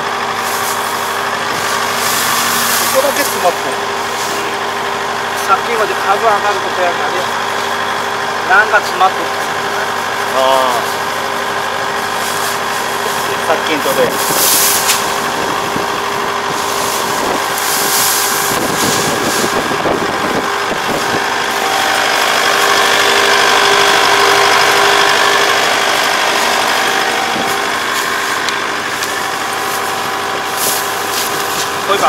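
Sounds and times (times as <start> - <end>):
diesel engine running: 0.0 - 32.0.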